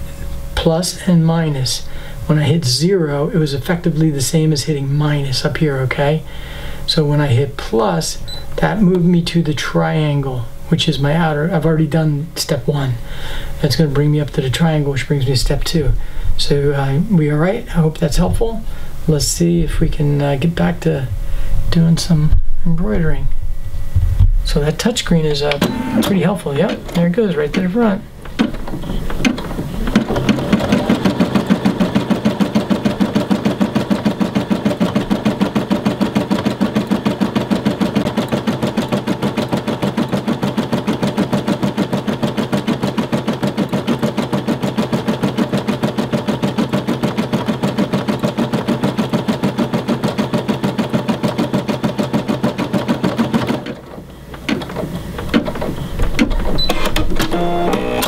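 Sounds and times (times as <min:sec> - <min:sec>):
embroidery machine sewing: 0:25.4 - 0:58.0.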